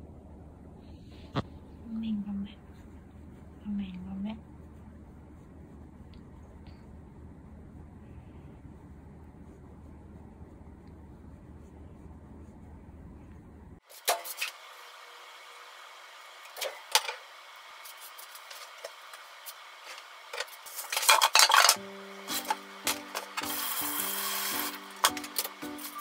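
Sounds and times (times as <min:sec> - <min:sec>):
kitchen knocks and clatters: 0:20.4 - 0:23.6
background music of short notes: 0:21.8 - 0:26.0.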